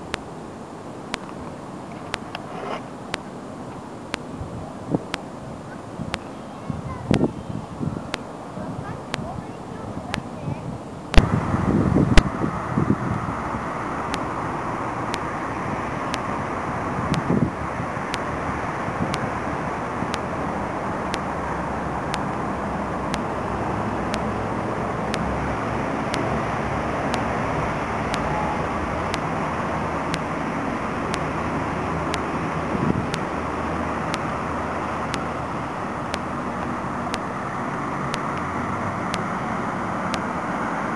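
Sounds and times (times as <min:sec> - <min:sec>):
faint ticking: 0:00.0 - 0:02.5, 0:03.1 - 0:05.4, 0:06.0 - 0:07.3, 0:08.0 - 0:10.4, 0:14.0 - 0:16.4, 0:17.1 - 0:26.4, 0:27.0 - 0:27.4, 0:28.0 - 0:37.4
vehicle rumble: 0:04.4 - 0:40.9.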